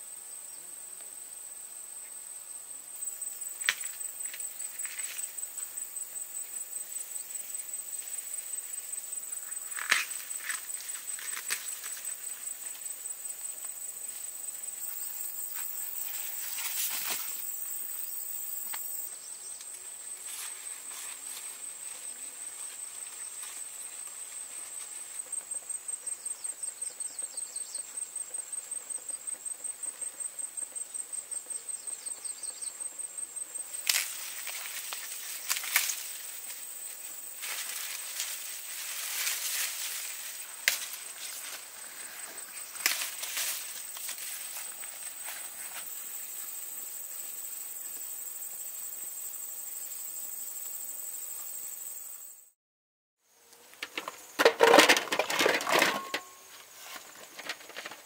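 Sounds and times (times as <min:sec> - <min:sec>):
insect trill: 0:01.2 - 0:52.6, 0:53.3 - 0:58.0
rustling: 0:33.8 - 0:45.9, 0:53.6 - 0:58.0.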